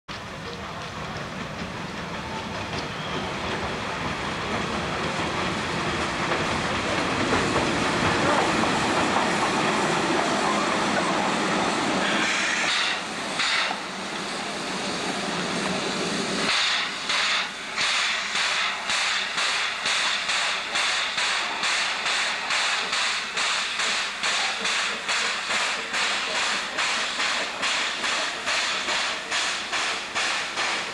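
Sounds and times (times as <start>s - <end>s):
locomotive running gear rumble: 0.1s - 13.2s
steam locomotive chuffing: 0.1s - 30.9s
steam hissing: 0.3s - 30.9s.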